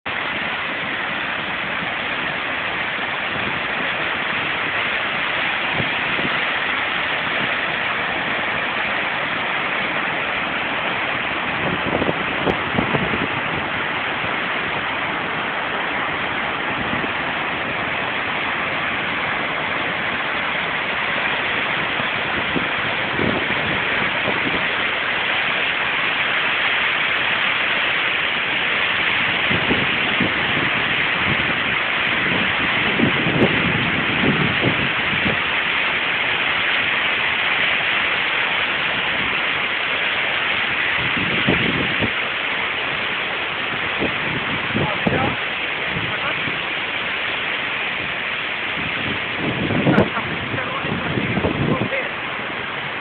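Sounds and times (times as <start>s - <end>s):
water roaring over a dam: 0.0s - 53.0s.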